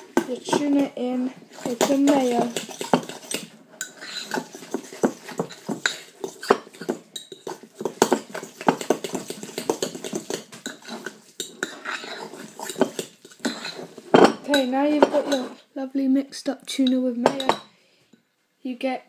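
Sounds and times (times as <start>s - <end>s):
metal utensil scraping ceramic bowl: 0.0s - 15.6s.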